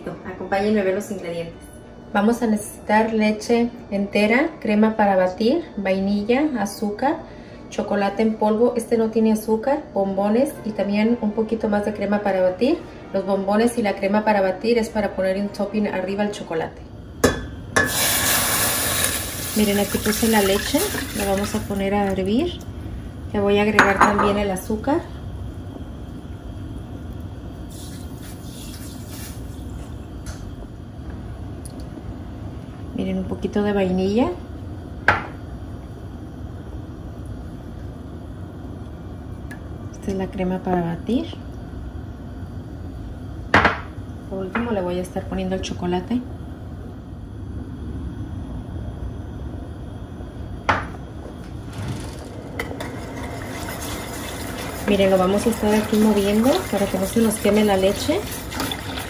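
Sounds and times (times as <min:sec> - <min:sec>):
gas burner rumble and hiss: 0:12.3 - 0:59.0
whisk stirring in pan: 0:52.8 - 0:59.0.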